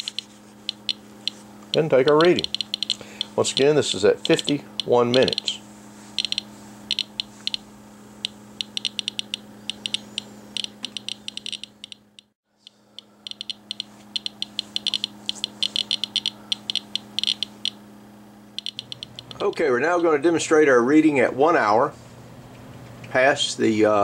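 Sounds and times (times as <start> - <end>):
geiger counter clicking: 0.0 - 5.6, 6.2 - 17.8, 18.6 - 20.2
steady low hum: 0.0 - 24.0.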